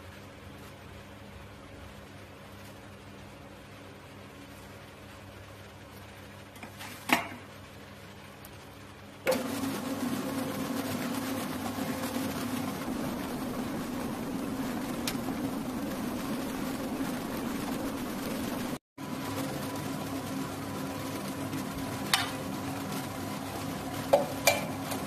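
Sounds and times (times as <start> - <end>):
mixer motor whisking: 9.3 - 25.0.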